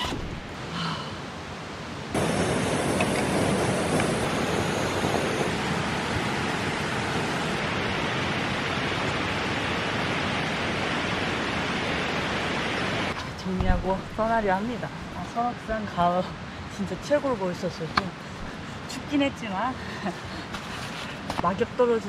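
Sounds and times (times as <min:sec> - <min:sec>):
stream rushing over rocks: 0:07.5 - 0:13.2.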